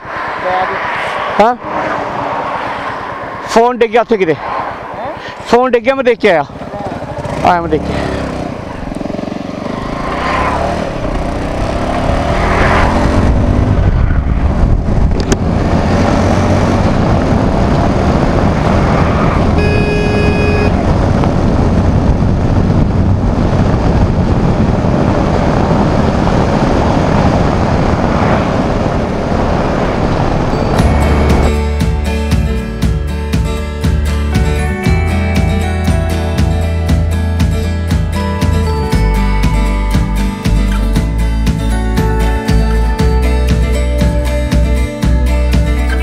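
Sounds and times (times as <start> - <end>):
motorcycle revving: 5.9 - 46.0
wind noise on microphone: 10.6 - 32.8
brief pitched tone: 19.6 - 20.8, 30.5 - 31.8.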